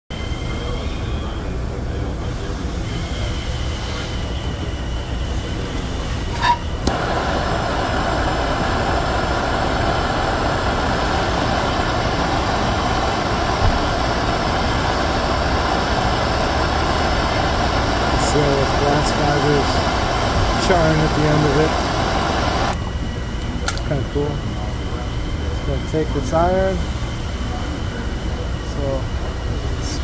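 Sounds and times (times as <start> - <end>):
gas torch hissing: 2.6 - 22.8, 25.5 - 30.0
low steady hum: 6.3 - 30.0
gas torch igniter click: 6.8 - 18.2.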